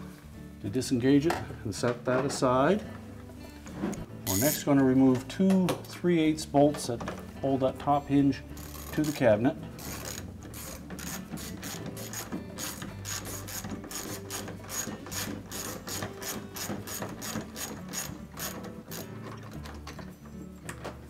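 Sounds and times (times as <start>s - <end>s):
socket ratchet clicking: 4.3s - 4.6s, 9.8s - 19.9s.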